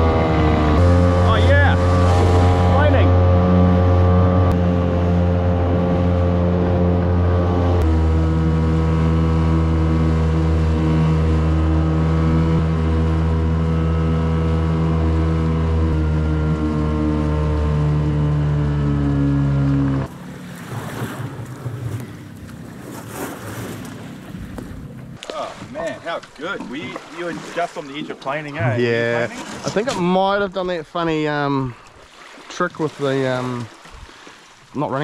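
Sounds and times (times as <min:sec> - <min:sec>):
outboard motor running: 0:00.0 - 0:35.0
wind: 0:00.0 - 0:35.0
water splashing: 0:00.3 - 0:07.2, 0:16.7 - 0:35.0.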